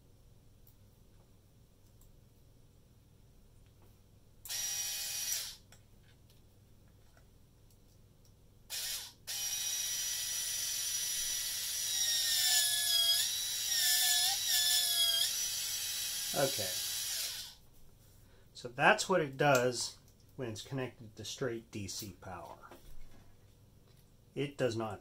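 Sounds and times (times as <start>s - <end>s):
small motor and gears whining: 4.5s - 5.6s, 8.7s - 17.6s.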